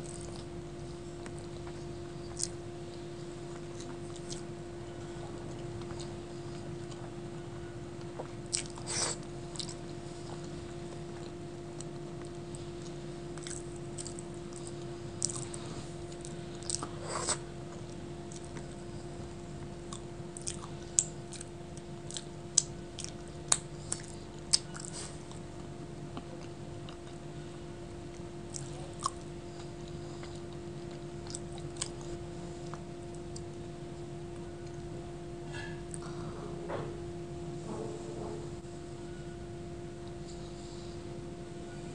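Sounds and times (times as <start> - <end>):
person chewing food: 0.0 - 7.3, 8.0 - 27.4, 28.1 - 33.6, 35.6 - 36.3
steady low hum: 0.0 - 41.9.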